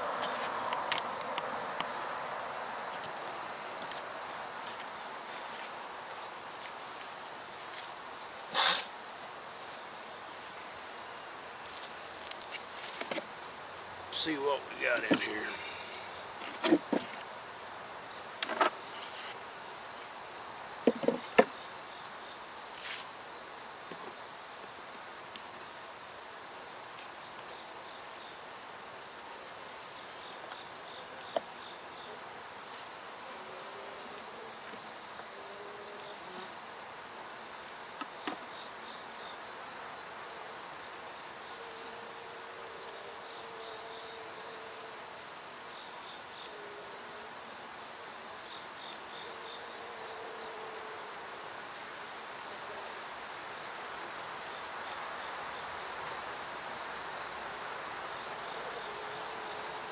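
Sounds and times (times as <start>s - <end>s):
insects droning: 0.0s - 59.9s
wooden hive parts knocking: 15.0s - 15.3s, 16.5s - 17.2s, 20.8s - 21.6s.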